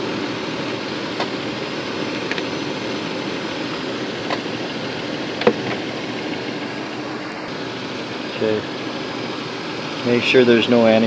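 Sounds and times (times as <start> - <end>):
car engine running: 0.0 - 11.0
radiator cooling fan rushing: 0.0 - 11.0.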